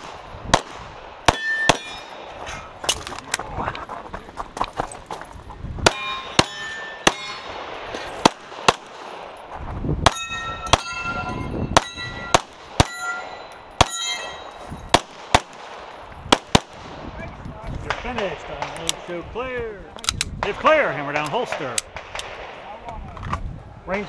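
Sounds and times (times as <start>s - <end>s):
pistol shots: 0.0s - 2.4s, 5.8s - 9.4s, 10.0s - 17.0s, 20.4s - 22.6s
steel targets ringing: 1.3s - 2.4s, 5.9s - 7.8s, 10.1s - 15.0s.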